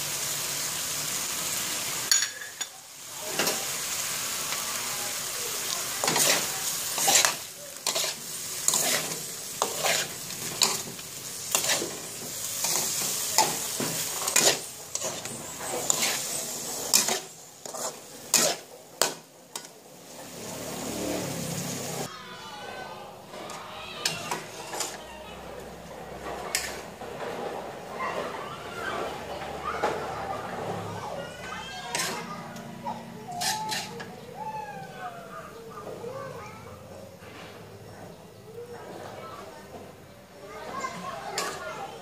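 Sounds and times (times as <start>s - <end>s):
hot oil sizzling: 0.0s - 22.4s, 23.1s - 32.3s
metal spatula scraping a wok: 5.2s - 19.7s, 25.7s - 27.9s, 31.8s - 32.4s, 33.2s - 34.1s, 41.4s - 41.7s.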